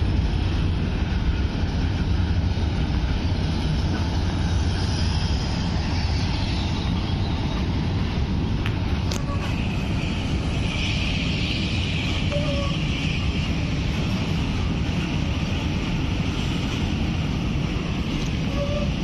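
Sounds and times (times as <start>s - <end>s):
freight train rolling past: 0.0s - 19.0s
hiss of rail noise: 0.0s - 19.0s
steel wheels rumbling on rail: 0.0s - 19.0s.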